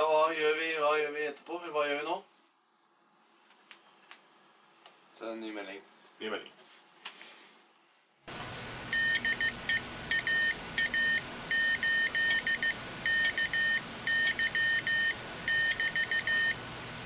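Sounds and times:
morse code beeping: 8.9s - 16.6s.

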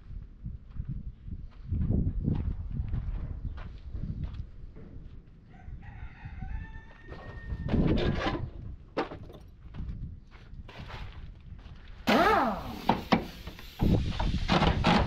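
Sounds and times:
rooster crowing: 5.5s - 7.9s
burst of noise: 12.1s - 15.0s.

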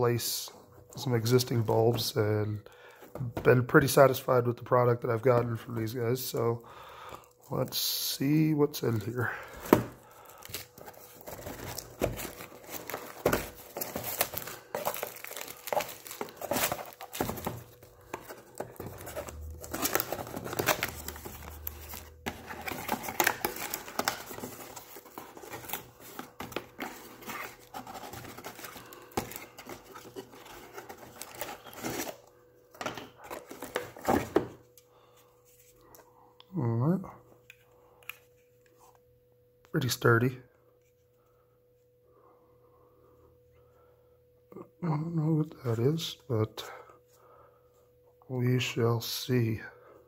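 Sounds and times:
plastic wrap crinkling and tearing: 9.0s - 32.2s
cardboard box being opened: 9.7s - 32.2s.

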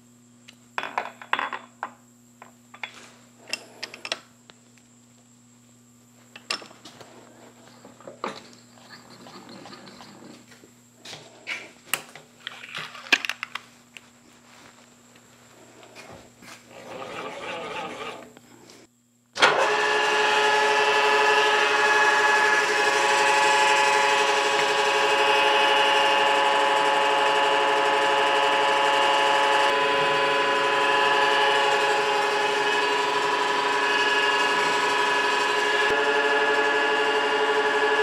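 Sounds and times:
milling machine cutting metal: 19.5s - 38.0s.

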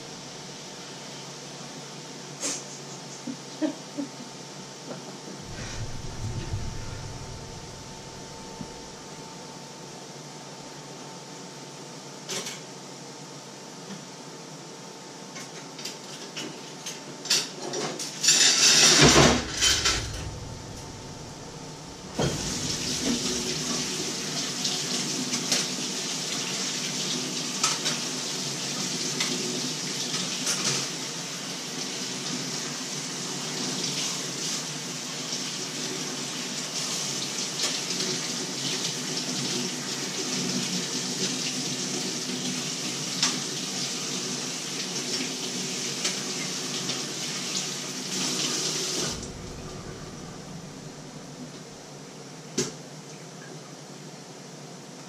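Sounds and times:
loud rush: 5.4s - 9.2s, 19.0s - 24.3s, 49.0s - 51.9s.

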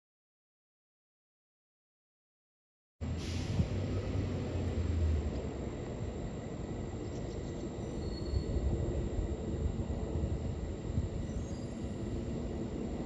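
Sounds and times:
airliner engines climbing: 3.0s - 13.0s.

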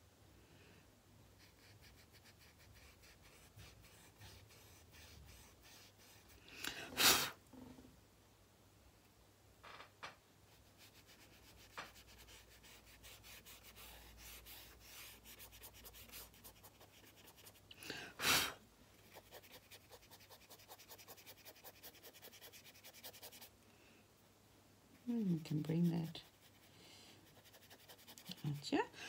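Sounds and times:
paintbrush scratching on paper: 1.4s - 6.4s, 10.5s - 17.6s, 19.0s - 23.5s, 25.2s - 28.7s.

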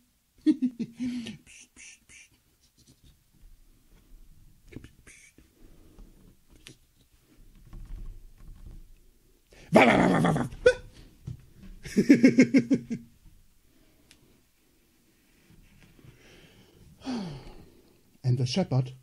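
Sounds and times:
hands handling yarn on a table: 2.6s - 9.4s, 13.1s - 16.2s
man imitating an animal cry: 5.0s - 5.4s, 9.7s - 10.9s.

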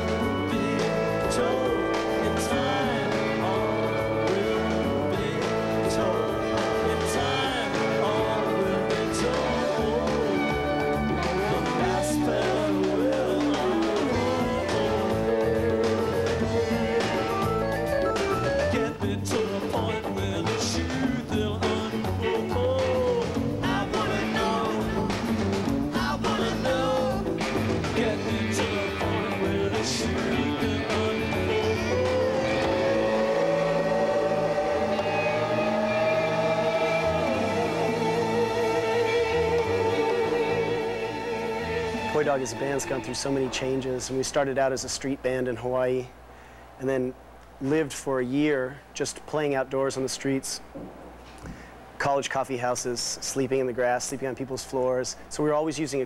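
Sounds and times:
man singing: 0.0s - 17.6s, 18.5s - 41.4s
live band playing: 0.0s - 43.9s.

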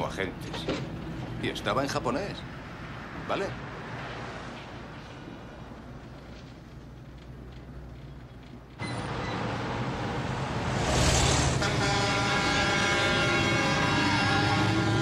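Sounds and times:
heavy truck engine: 4.0s - 15.0s.

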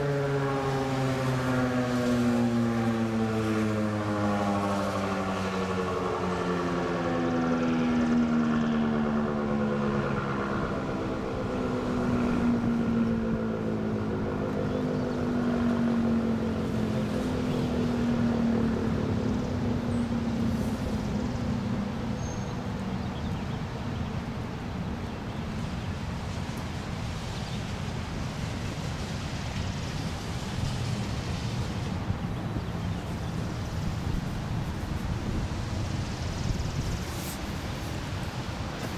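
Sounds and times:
warning siren winding down: 0.0s - 22.2s
wind noise: 26.9s - 38.9s.

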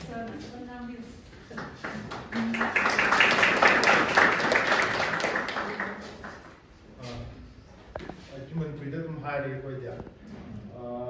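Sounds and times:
people applauding: 1.5s - 6.7s.

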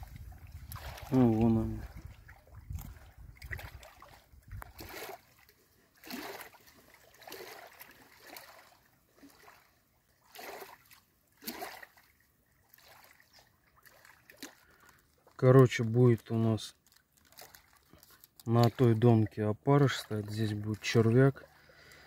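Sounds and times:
small waves lapping: 0.0s - 15.4s, 16.8s - 22.0s.

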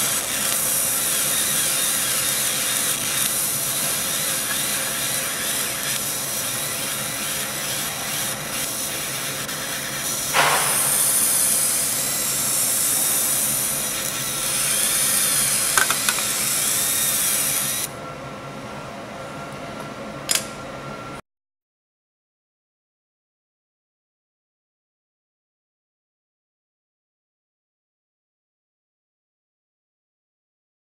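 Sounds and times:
laser cutter hissing: 0.0s - 17.9s
faint whine varying in pitch: 0.0s - 21.2s.

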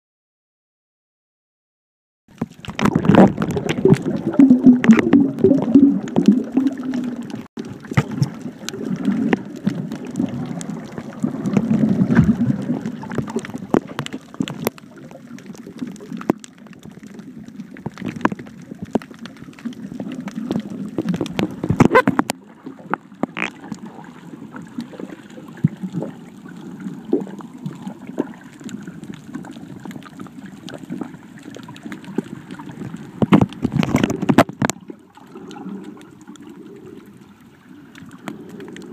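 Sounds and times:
underwater clicks and knocks: 2.3s - 24.0s, 30.6s - 36.4s
muffled underwater rumbling: 2.3s - 38.9s.

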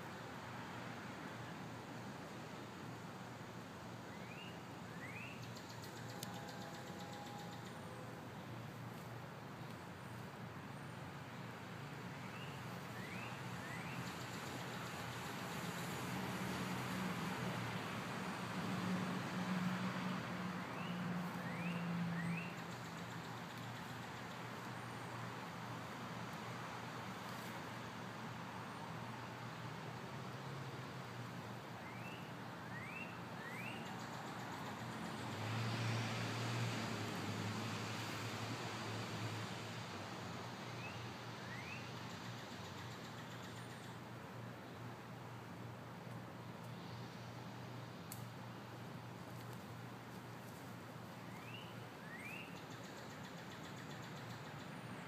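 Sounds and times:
distant road traffic rumble: 0.0s - 55.0s
outdoor noise haze: 0.0s - 55.0s
distant engine hum: 12.2s - 27.7s
rising bird chirps: 51.3s - 52.6s.

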